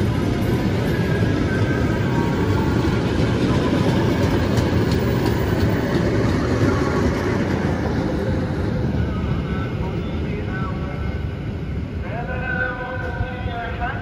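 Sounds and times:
train wheels rumbling on track: 0.0 - 14.0
faint rail clacks: 0.4 - 8.1.

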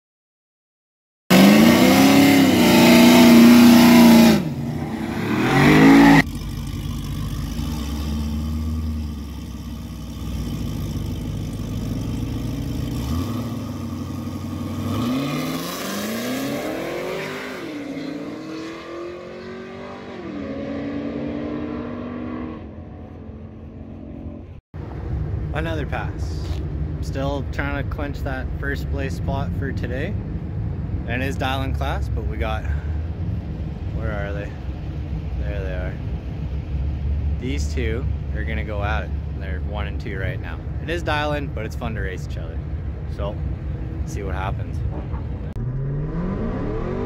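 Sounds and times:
car engine revving and accelerating: 1.3 - 24.5, 42.6 - 47.0.

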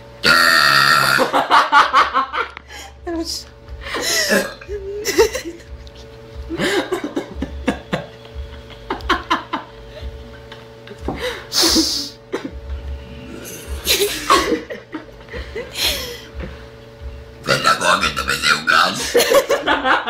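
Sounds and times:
faint steady hum: 0.0 - 20.0
person laughing and chuckling: 1.1 - 3.0, 3.8 - 12.7, 13.4 - 16.4, 19.0 - 20.0.

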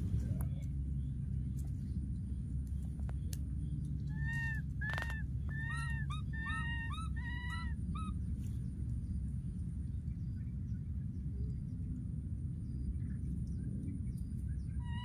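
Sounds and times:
low background rumble: 0.0 - 15.0
baby monkey squeaking: 4.1 - 8.1.

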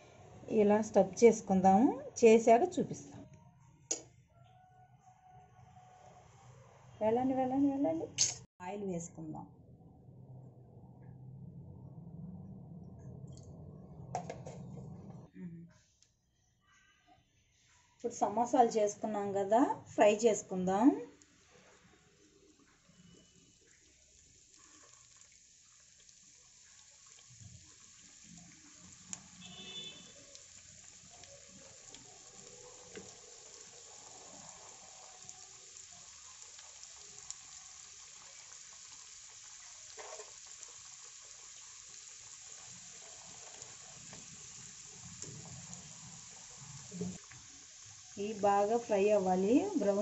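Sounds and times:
food deep-frying in hot oil: 20.0 - 50.0.

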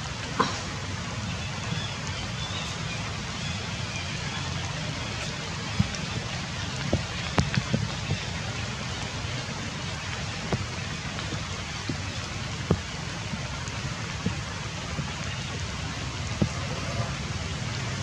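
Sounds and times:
light rain hissing: 0.0 - 18.0
single raindrops striking: 0.0 - 18.0.

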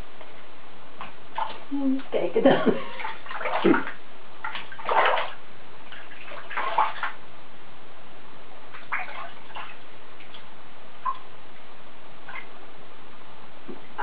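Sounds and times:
shower running into bathwater: 1.3 - 7.2
small water splashes: 1.3 - 7.2, 8.7 - 11.2, 12.2 - 12.5.

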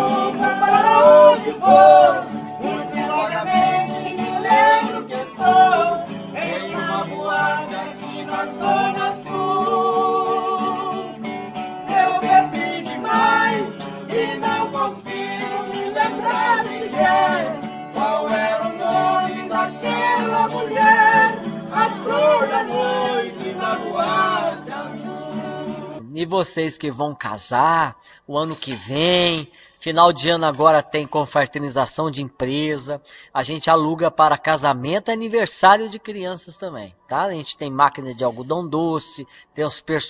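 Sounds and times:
men singing together: 0.0 - 11.2, 11.8 - 26.0
acoustic guitars strummed: 0.0 - 26.0.

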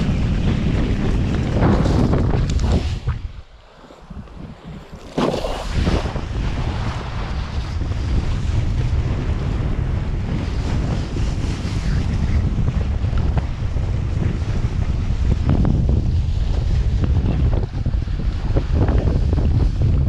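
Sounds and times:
kiteboard slapping through water: 0.0 - 20.0
wind buffeting microphone: 0.0 - 20.0.

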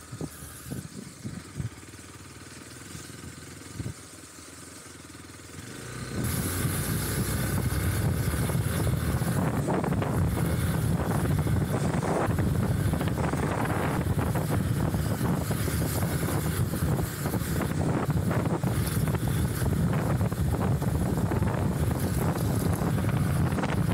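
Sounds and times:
motorcycle engine running: 0.0 - 23.9
wind buffeting microphone: 6.2 - 23.9.

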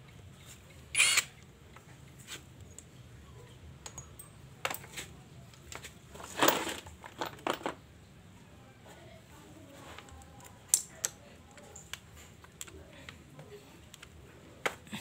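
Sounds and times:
metal tools clattering on concrete: 3.8 - 5.0, 5.7 - 7.8.

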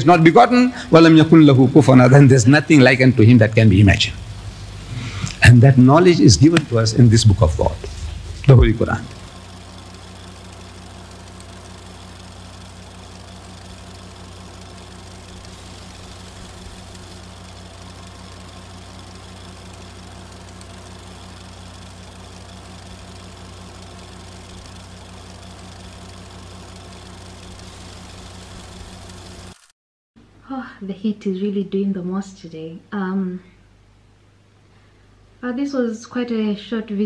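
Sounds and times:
fluttering low electric hum: 0.0 - 29.7
faint hiss: 0.5 - 24.4.

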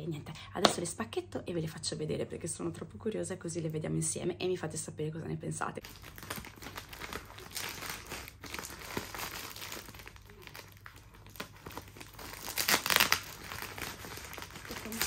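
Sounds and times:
plastic mailer bag crinkling: 5.8 - 15.0.

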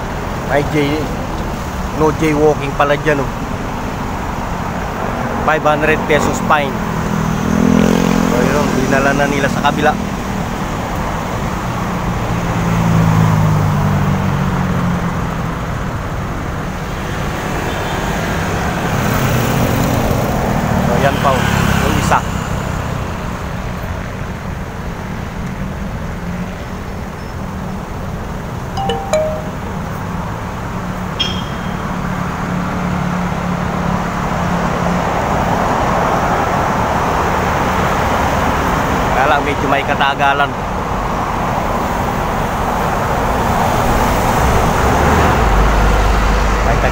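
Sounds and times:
cars passing: 0.0 - 26.5, 30.6 - 46.9
road traffic engine hum: 0.0 - 46.9
vehicle approaching: 3.9 - 10.8.

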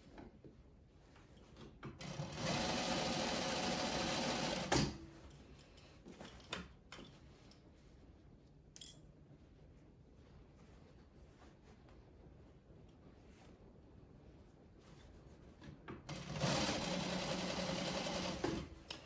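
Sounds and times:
sewing machine clack: 1.9 - 5.0, 16.0 - 18.8
sewing machine stitching: 1.9 - 5.0, 16.0 - 18.8.

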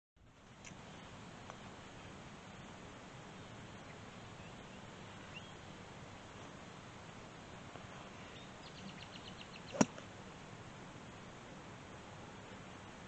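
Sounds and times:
faint outdoor background: 0.2 - 13.0
golf club striking ball: 9.7 - 10.0.

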